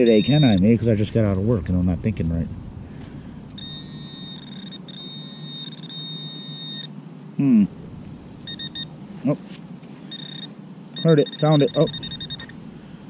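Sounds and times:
metal detector alarm tone: 0.0 - 0.8, 3.6 - 6.9, 8.4 - 8.9, 10.1 - 12.6
person humming: 7.4 - 7.8.

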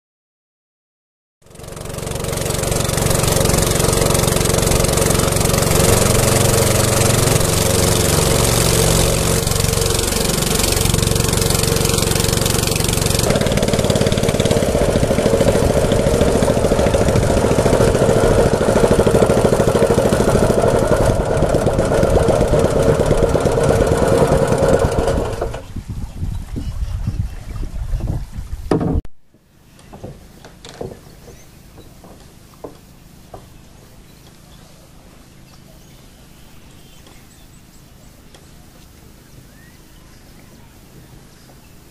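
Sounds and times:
boat motor running: 1.4 - 25.8.

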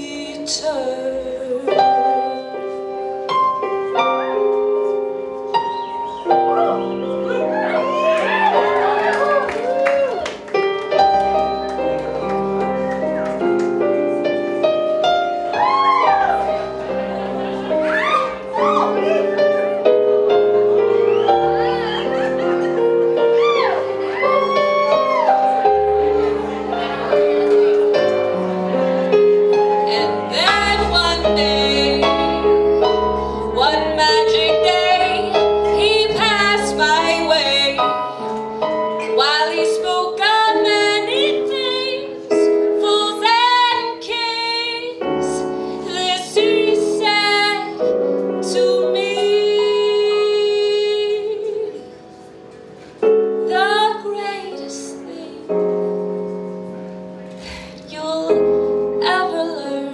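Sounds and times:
woman singing a slow ballad: 0.0 - 3.0, 29.8 - 32.5, 33.1 - 38.2, 38.9 - 52.0, 53.3 - 55.6, 57.8 - 59.9
piano accompaniment: 0.0 - 59.9.

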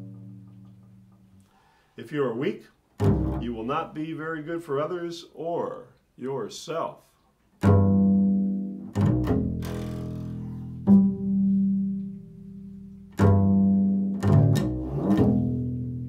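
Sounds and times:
double bass plucked notes: 0.0 - 1.5, 3.0 - 4.3, 7.6 - 16.0.

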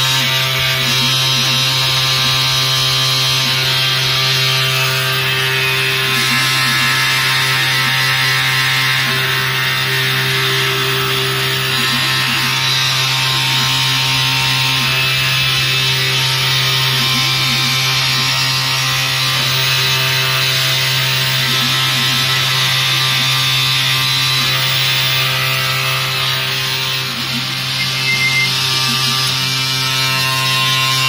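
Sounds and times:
axis motors wavering tone: 27.0 - 29.3.

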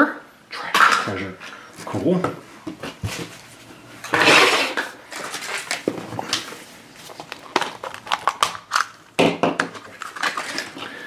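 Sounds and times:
plastic rustling scrape: 2.9 - 8.5, 9.8 - 11.0.

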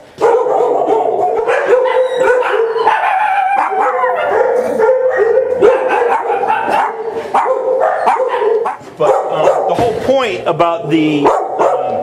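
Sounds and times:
dogs barking and howling: 0.1 - 9.8, 11.2 - 12.0.

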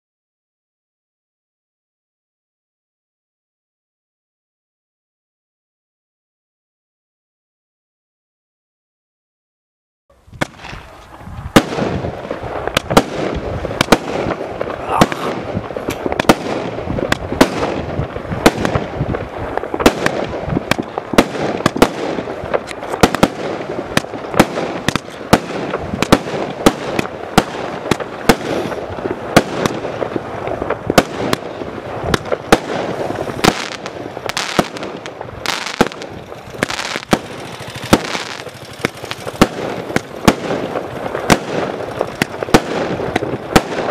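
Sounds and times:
firework hiss and crackle: 10.2 - 43.9
fireworks shots and bursts: 10.2 - 43.9.

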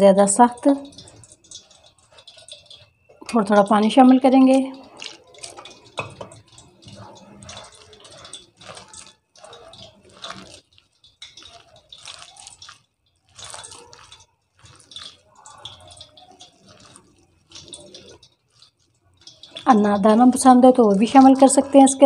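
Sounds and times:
hand squelching wet batter: 0.5 - 21.6.

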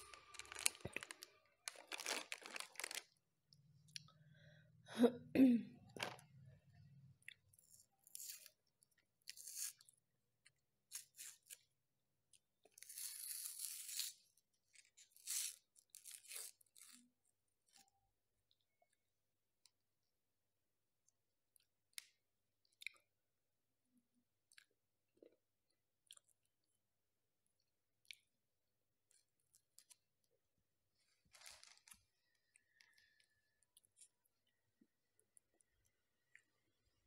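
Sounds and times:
crunching bites and chewing: 0.0 - 3.2
paper sleeve crinkling and tearing: 0.1 - 3.0.

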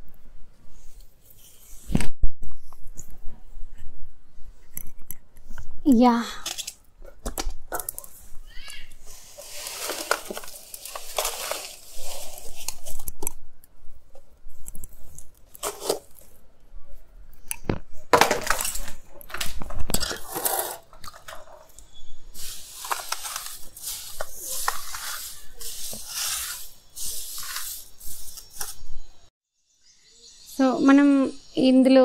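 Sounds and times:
sand scraping and rustling: 9.0 - 13.0, 22.3 - 28.8.

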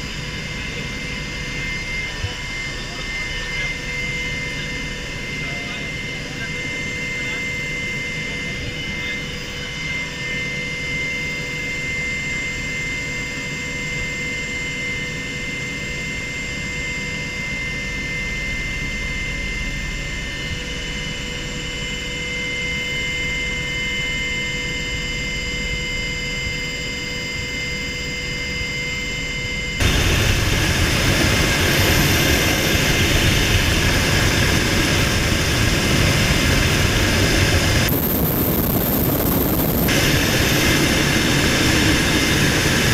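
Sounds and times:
helicopter cabin drone: 0.0 - 42.9
rough rush of rotor and wind: 0.0 - 42.9
high gearbox whine: 29.8 - 42.9.

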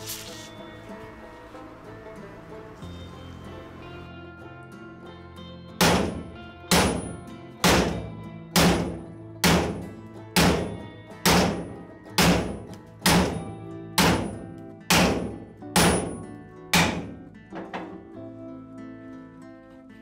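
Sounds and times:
background music: 0.0 - 20.0
hammer blows on metal: 5.8 - 17.2.

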